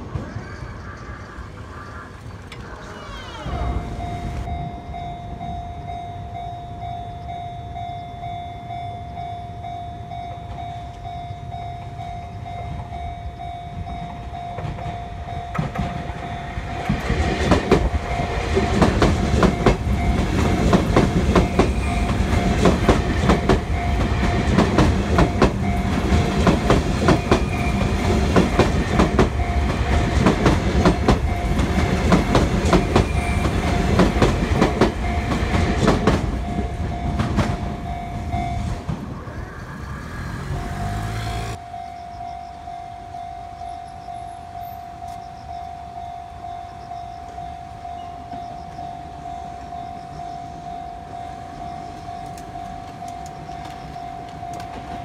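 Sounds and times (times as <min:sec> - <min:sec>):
level crossing bell ringing: 0:03.4 - 0:17.2, 0:17.9 - 0:38.9, 0:41.5 - 0:55.0
train wheels clacking and rumbling: 0:12.6 - 0:41.6, 0:51.6 - 0:55.0.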